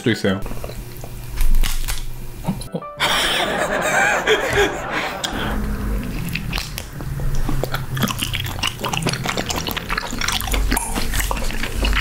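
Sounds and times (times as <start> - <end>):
people chewing with mouth clicks: 0.4 - 2.7, 5.2 - 12.0.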